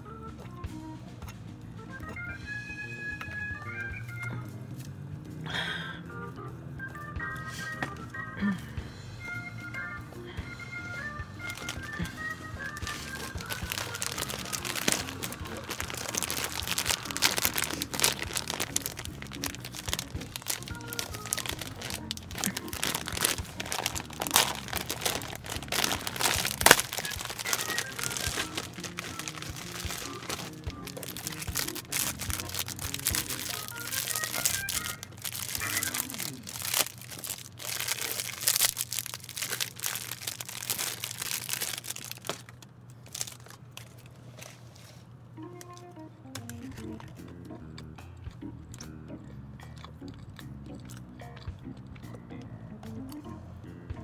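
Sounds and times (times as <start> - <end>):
music: 0.0 - 42.2, 45.2 - 54.0
plastic bag crinkling: 11.4 - 44.6.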